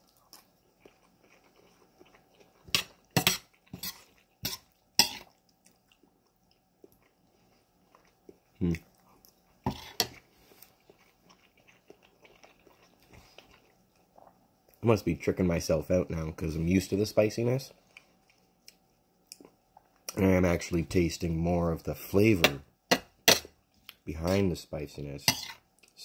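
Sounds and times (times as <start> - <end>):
person chewing: 0.0 - 14.8, 17.8 - 20.2
spoon scraping metal bowl: 2.8 - 5.2, 9.7 - 10.2, 25.3 - 25.6.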